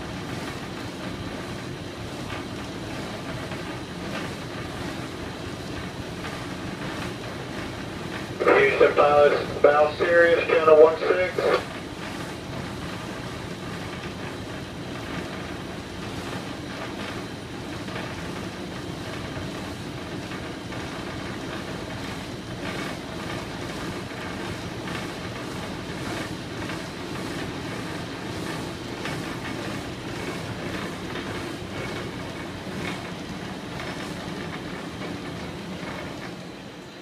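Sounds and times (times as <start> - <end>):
diesel engine rumbling: 8.0 - 14.6.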